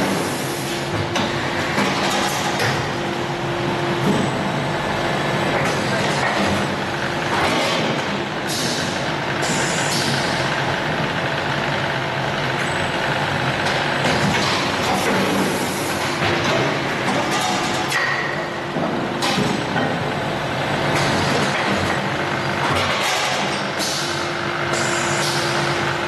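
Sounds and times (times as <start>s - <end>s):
die casting machine running: 0.0s - 26.0s
pneumatic air hisses: 9.4s - 10.0s.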